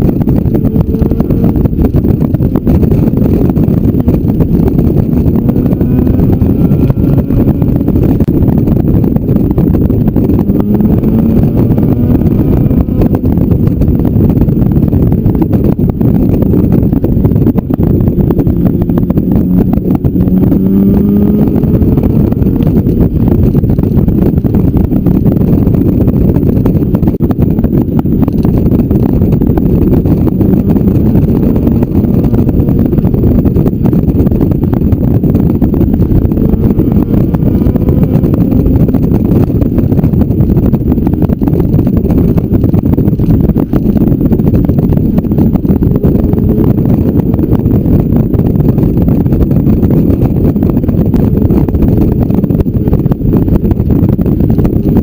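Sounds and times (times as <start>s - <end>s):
motorcycle engine running: 0.0s - 55.0s
wind buffeting microphone: 0.0s - 55.0s.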